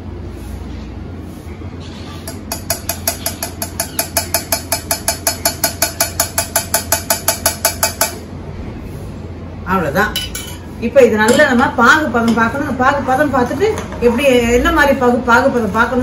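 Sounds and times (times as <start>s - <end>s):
steady low hum: 0.0s - 16.0s
strainer tapping on steel pan: 2.3s - 8.2s.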